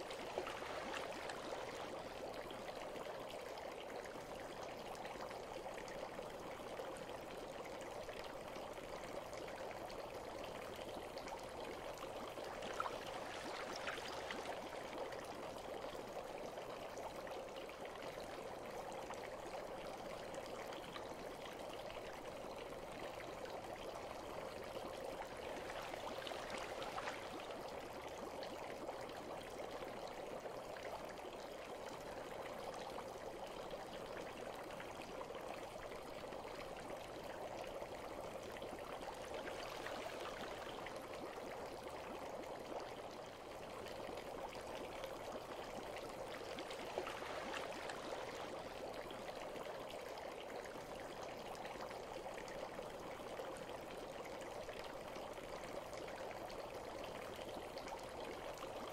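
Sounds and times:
running water trickling: 0.0 - 6.6, 9.3 - 16.7, 20.8 - 32.6, 38.0 - 54.1.

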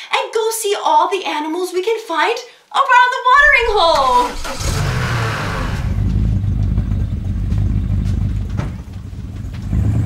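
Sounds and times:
engine low rumble: 3.4 - 10.0.

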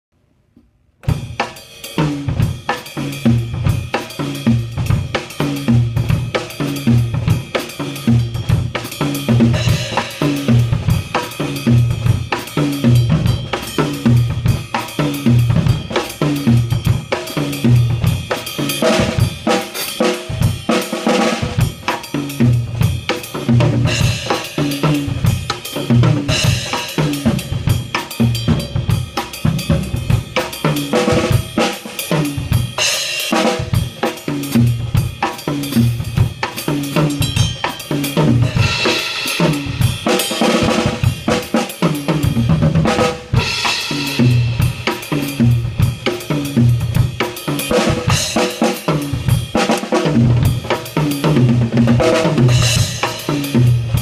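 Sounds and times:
drum kit jazz groove: 1.0 - 54.0.

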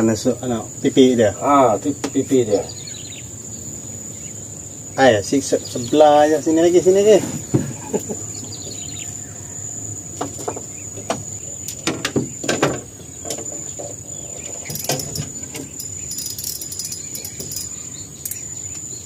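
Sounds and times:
high-pitched insect trill: 0.0 - 19.0
fishing gear clicks and knocks: 14.4 - 18.8.

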